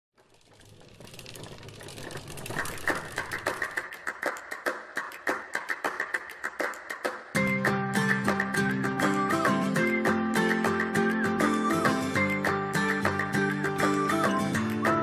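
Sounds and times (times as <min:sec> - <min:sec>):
fast sharp clicks: 0:00.2 - 0:07.0.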